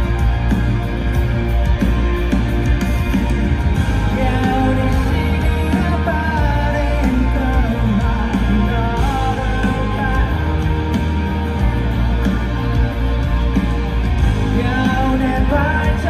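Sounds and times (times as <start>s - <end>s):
live rock band playing: 0.0s - 16.0s
person singing lead vocal: 3.8s - 16.0s.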